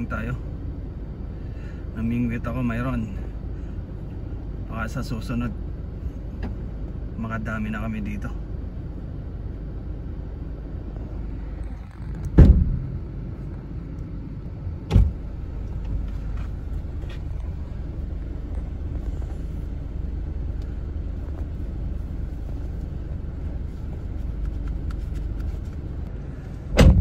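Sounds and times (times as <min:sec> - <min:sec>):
loud thumps: 0:12.2 - 0:13.1, 0:14.9 - 0:15.2, 0:26.7 - 0:27.0.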